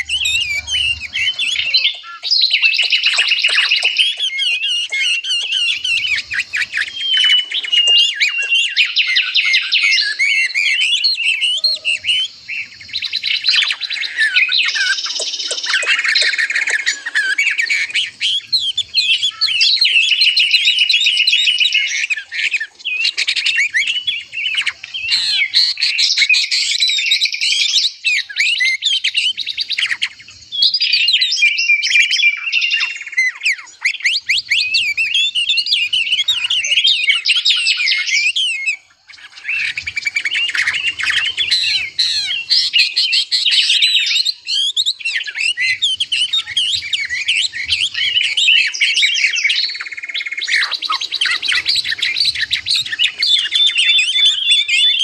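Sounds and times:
songbirds chirping: 0.0 - 55.0.

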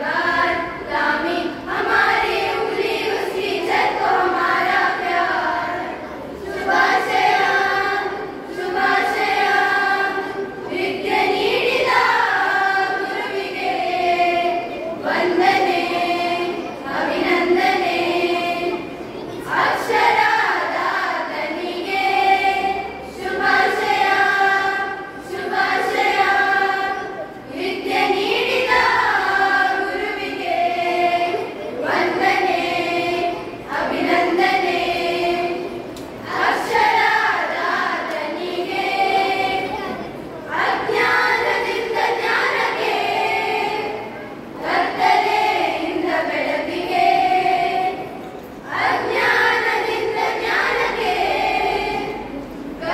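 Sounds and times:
children's choir singing: 0.0 - 52.9.

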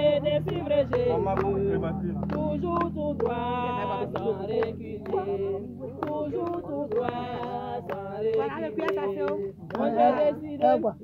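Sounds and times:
group singing a hymn: 0.0 - 11.0.

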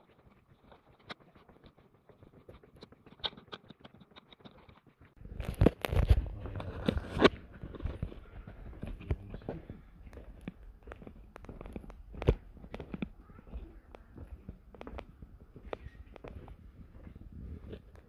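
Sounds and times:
footsteps on cave trail: 4.8 - 18.0
camera handling rustling: 5.3 - 13.2.

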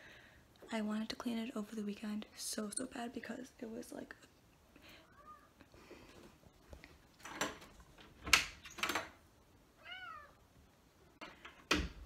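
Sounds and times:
cat meowing: 5.1 - 5.5, 9.8 - 10.4.

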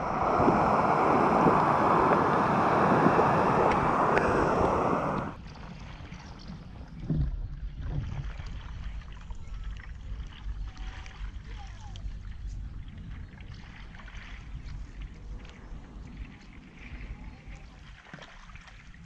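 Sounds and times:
water rushing over waterfall: 0.0 - 5.4
paddle splashing in water: 0.0 - 6.6, 12.9 - 19.0
wind rumbling on microphone: 0.0 - 18.0.

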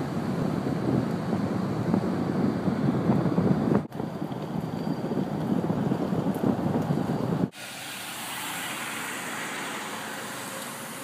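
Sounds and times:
wind buffeting microphone: 0.0 - 7.6
vehicle rumble on road: 0.0 - 11.0.

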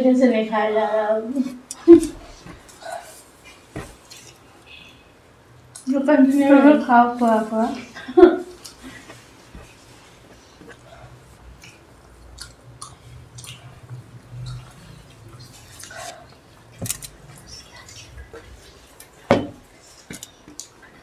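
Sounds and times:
chewing and slurping: 8.6 - 21.0.

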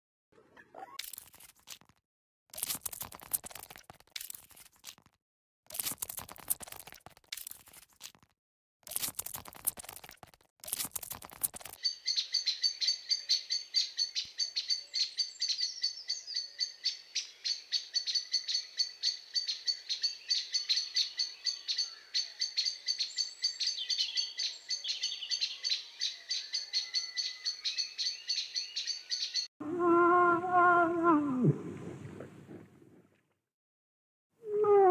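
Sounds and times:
crackly rustling bursts: 8.9 - 11.8.

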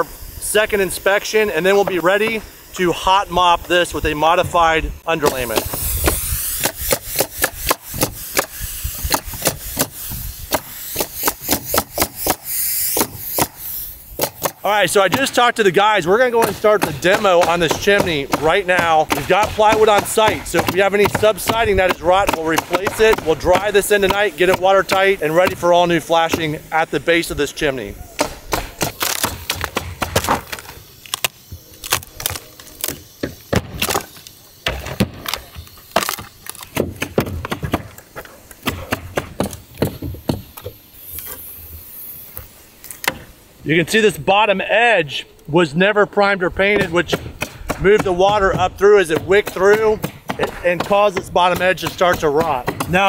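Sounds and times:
pneumatic nailer firing: 5.2 - 15.5, 16.2 - 26.6, 28.1 - 43.4
wood cracking and splintering: 28.5 - 38.0
hammer knocking on wood: 46.8 - 53.0.

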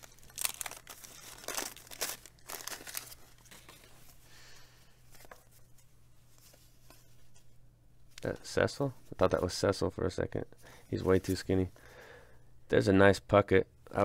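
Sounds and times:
paper wrapper tearing: 0.0 - 3.7
cards rustling: 0.0 - 4.2, 5.1 - 7.4.

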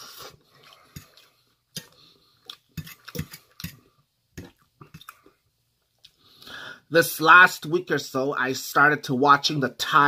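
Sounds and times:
person chewing food: 0.0 - 6.5.

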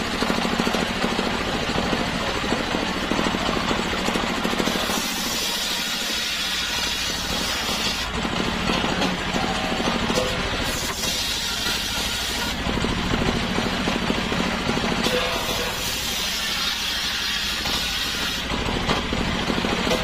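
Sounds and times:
diesel engine running: 0.0 - 20.0
circular saw cutting wood: 4.3 - 12.9, 14.8 - 20.0.

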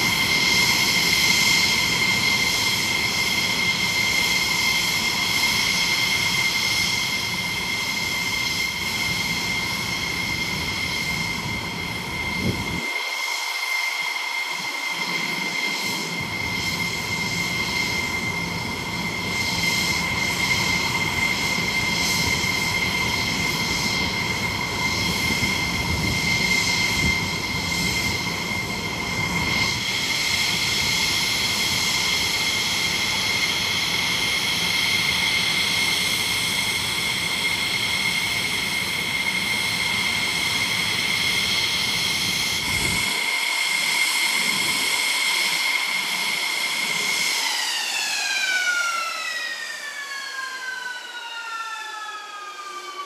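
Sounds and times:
jet engine rumble: 0.0 - 53.0
jet engine turbine whine: 0.0 - 53.0.

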